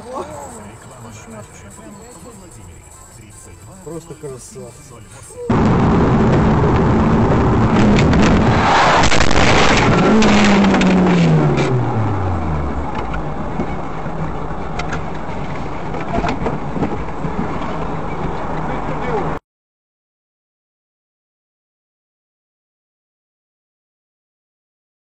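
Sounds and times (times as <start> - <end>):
car road and engine noise: 0.0 - 19.4.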